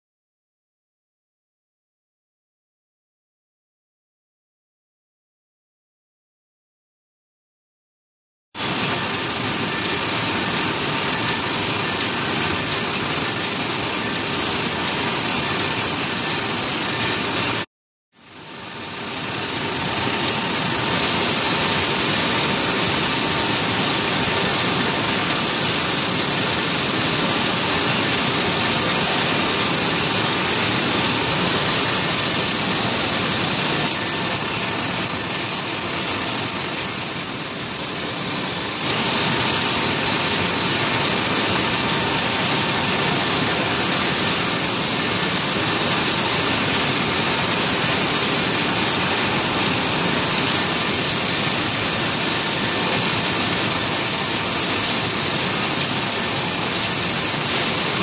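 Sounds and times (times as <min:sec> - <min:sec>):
low machine noise: 0:18.3 - 0:58.0.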